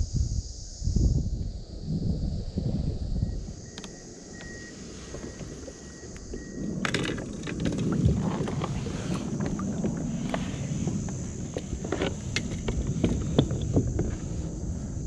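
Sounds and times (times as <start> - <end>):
wind rumbling on microphone: 0.0 - 15.0
knocks and scraping of plastic kayak: 4.8 - 15.0.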